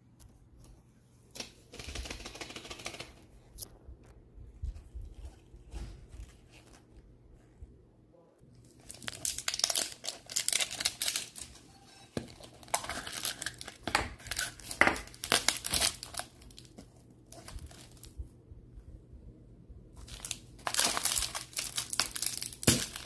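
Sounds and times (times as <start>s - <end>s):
plastic shrink wrap crinkling: 8.6s - 18.2s, 20.0s - 23.0s.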